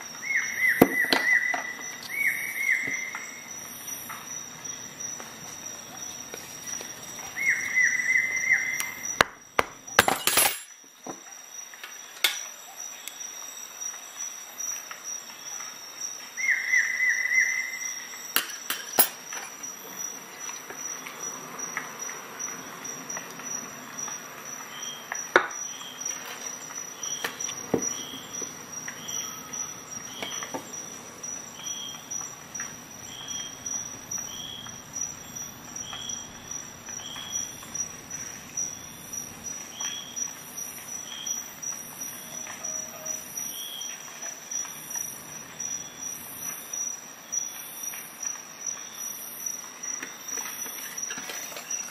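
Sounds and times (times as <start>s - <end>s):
faint high chirps: 42.2s - 43.9s.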